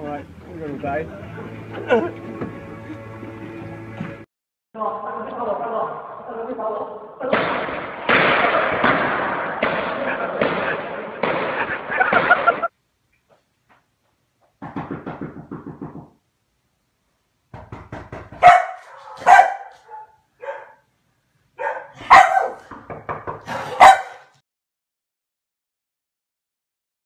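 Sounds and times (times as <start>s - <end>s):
dog barking: 18.4s - 20.9s, 21.6s - 22.7s, 23.4s - 24.4s.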